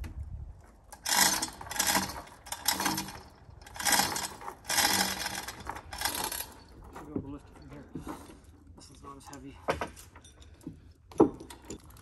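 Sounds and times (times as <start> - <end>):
hoist chain and ratchet rattling: 0.9 - 9.3.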